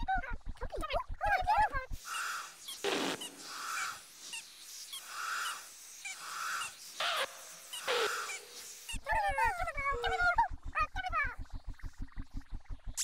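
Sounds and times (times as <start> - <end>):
faint bird chirps: 2.0 - 10.3.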